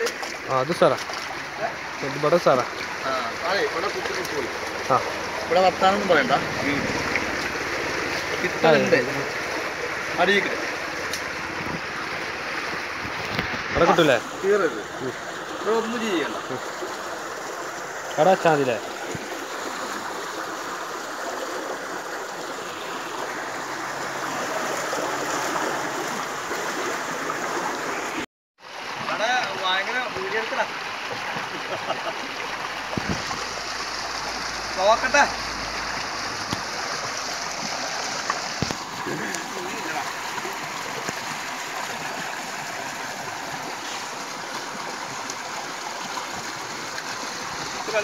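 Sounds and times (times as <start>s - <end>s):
water rushing through culvert: 0.0s - 48.0s.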